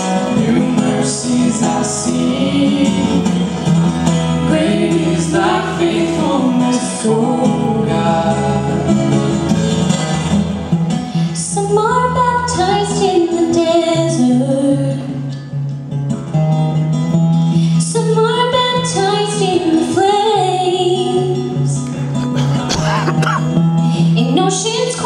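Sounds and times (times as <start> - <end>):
acoustic guitar: 0.0 - 25.0
woman singing into a microphone: 11.2 - 15.4, 17.6 - 21.8, 23.9 - 25.0.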